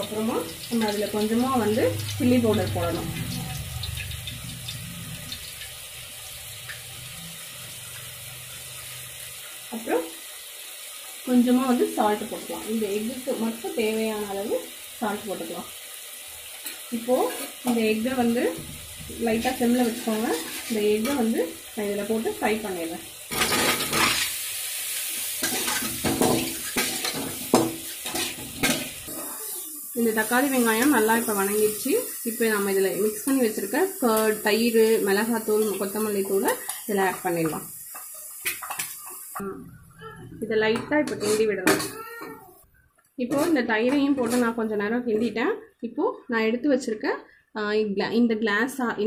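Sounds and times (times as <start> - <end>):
hot oil hissing: 0.0 - 39.5
metal spatula scraping pan: 16.6 - 21.4, 23.3 - 24.4, 25.2 - 29.6, 35.4 - 39.4, 41.0 - 42.0, 43.3 - 44.6.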